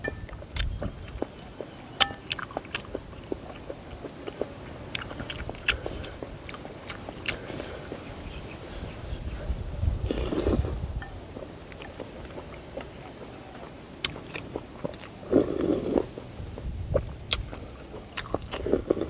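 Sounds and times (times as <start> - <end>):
person chewing noodles: 0.2 - 8.8, 10.0 - 19.0
wet mouth clicks: 0.5 - 1.3, 5.0 - 8.1.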